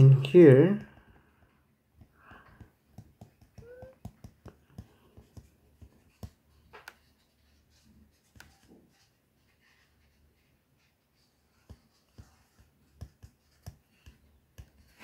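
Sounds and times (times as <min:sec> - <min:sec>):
stylus tapping on glass screen: 0:02.0 - 0:05.5.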